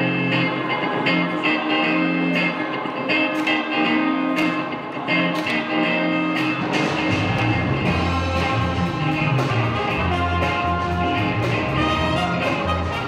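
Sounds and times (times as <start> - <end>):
electric guitars strumming funk rhythm: 0.0 - 13.0
low bass line: 6.1 - 13.0.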